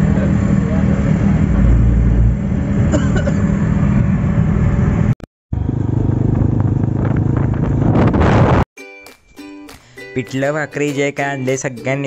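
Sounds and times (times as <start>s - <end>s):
car road and engine noise: 0.0s - 8.6s
motorcycle engine cruising: 0.0s - 8.6s
wind rushing past: 3.6s - 8.6s
wind buffeting: 3.7s - 8.6s.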